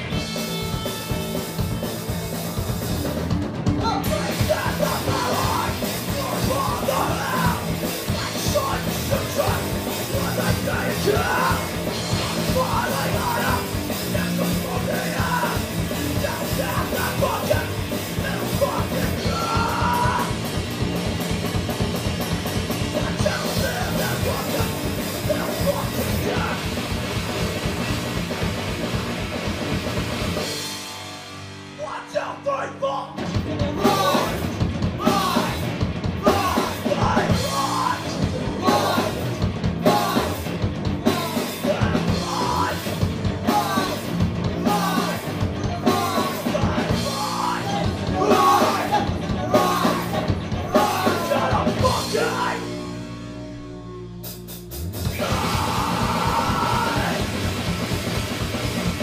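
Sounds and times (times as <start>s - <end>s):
drums and cymbals: 0.0s - 31.8s, 33.2s - 59.0s
distorted electric guitars: 0.0s - 59.0s
punk band playing: 0.0s - 59.0s.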